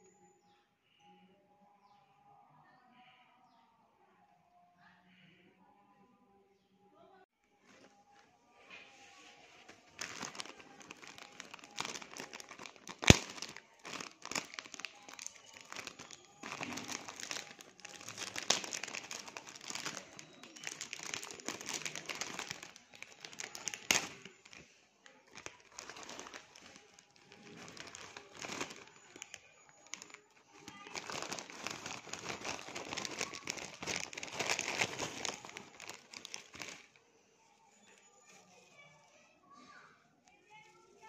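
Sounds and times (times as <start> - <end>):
plastic snack packet crinkling: 7.7 - 37.0.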